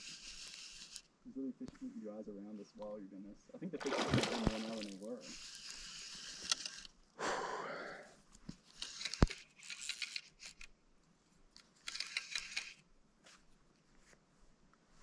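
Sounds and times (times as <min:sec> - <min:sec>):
fish splashing at surface: 0:03.8 - 0:05.0.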